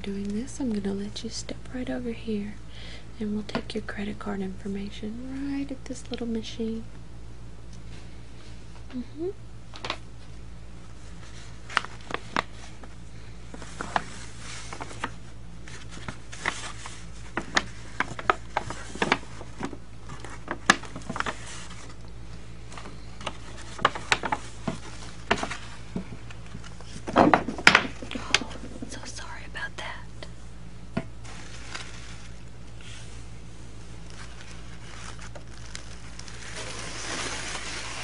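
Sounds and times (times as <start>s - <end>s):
steady low hum: 0.0s - 38.0s
wrapping paper rustling: 10.9s - 29.0s, 31.1s - 38.0s.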